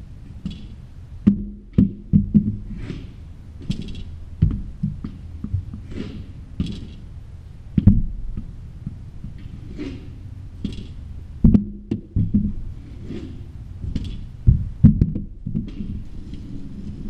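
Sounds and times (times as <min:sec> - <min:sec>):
hockey stick knocking balls: 0:00.4 - 0:17.0
short scrapes: 0:02.6 - 0:04.1, 0:05.6 - 0:07.1, 0:09.4 - 0:11.0, 0:12.7 - 0:14.2, 0:15.7 - 0:17.0.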